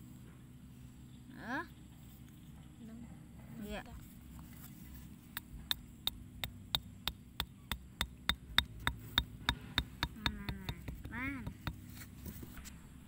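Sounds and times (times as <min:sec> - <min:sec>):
small axe tapping bamboo stake: 0:05.3 - 0:12.1.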